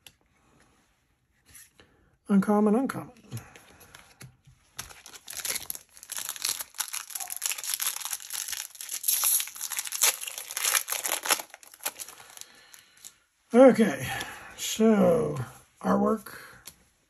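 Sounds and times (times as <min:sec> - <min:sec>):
foil wrapper crinkling and tearing: 0:04.8 - 0:13.1.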